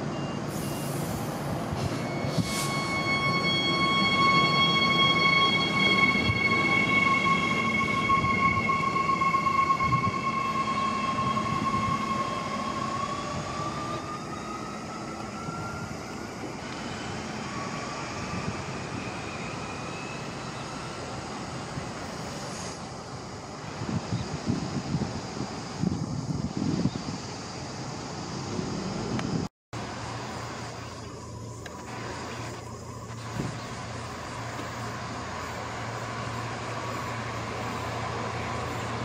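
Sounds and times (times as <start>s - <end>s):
electric train whine: 0.0s - 39.0s
train wheels rumbling on rails: 0.0s - 39.0s
wind buffeting microphone: 23.5s - 29.5s, 33.0s - 34.0s.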